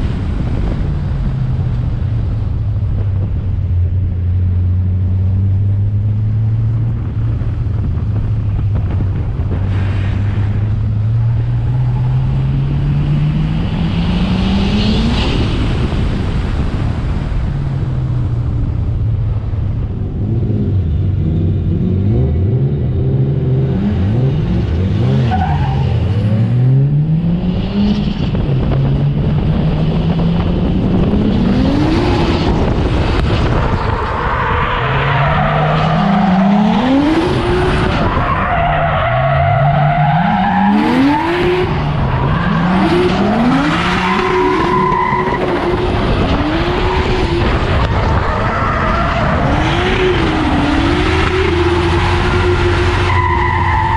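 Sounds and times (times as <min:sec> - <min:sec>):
car engine revving: 0:18.5 - 0:53.9.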